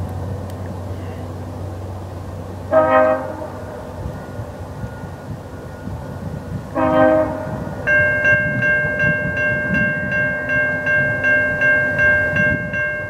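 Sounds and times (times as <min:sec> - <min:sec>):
low steady rumble: 0:00.0 - 0:13.0
train air horn chord: 0:02.7 - 0:03.9, 0:06.7 - 0:08.4.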